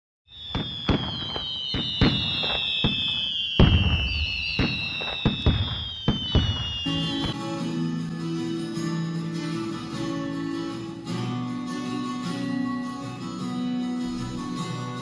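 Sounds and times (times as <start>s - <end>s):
fireworks banging: 0.3s - 7.7s
firework whistles falling in pitch: 0.3s - 7.8s.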